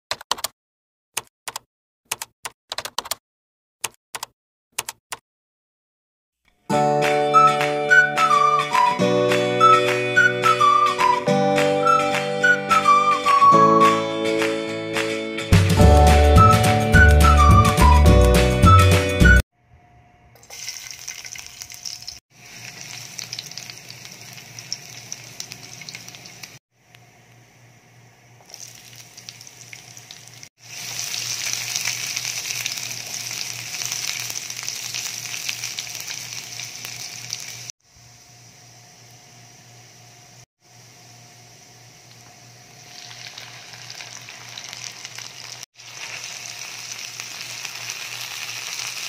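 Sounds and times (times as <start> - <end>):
keyboard clicks: 0.1 - 0.5, 1.2 - 3.2, 3.8 - 5.2
garlic sizzling in hot oil: 20.4 - 26.6, 28.4 - 37.7, 42.1 - 49.0.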